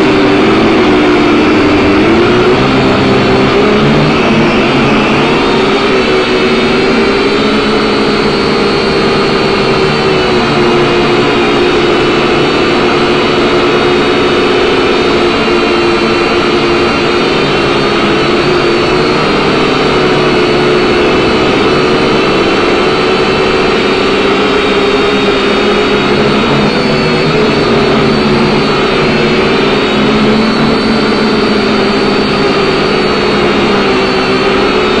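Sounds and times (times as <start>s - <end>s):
drone motors whining: 0.0s - 35.0s.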